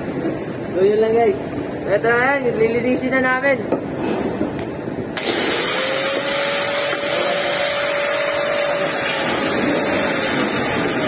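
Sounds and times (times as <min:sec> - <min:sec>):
grinder grinding rusted steel: 0:05.2 - 0:11.0.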